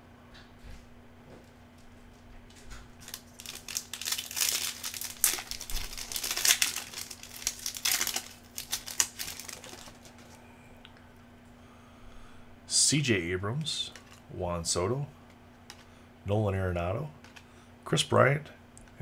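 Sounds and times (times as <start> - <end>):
foil wrapper crinkling and tearing: 3.0 - 10.4.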